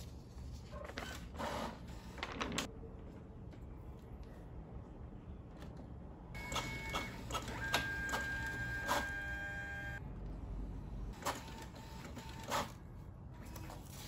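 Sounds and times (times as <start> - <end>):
printer clicks and whirring: 6.4 - 10.0, 11.2 - 12.8
printer whine: 6.4 - 10.0.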